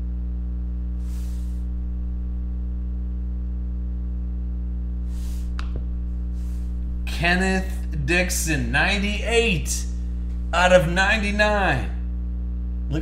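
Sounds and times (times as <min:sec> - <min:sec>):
low electrical hum: 0:00.0 - 0:13.0
soft hisses: 0:01.0 - 0:01.7, 0:05.1 - 0:05.7, 0:06.3 - 0:07.3.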